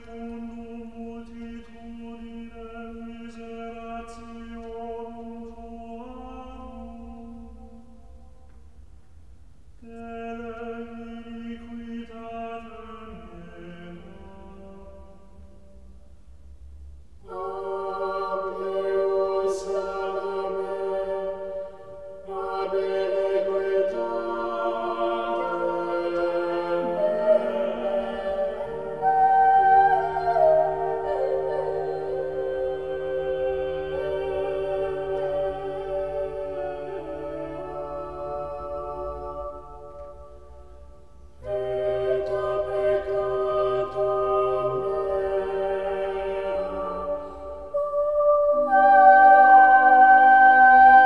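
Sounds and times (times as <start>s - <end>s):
chant-like drone: 9.8s - 16.0s, 17.2s - 51.0s.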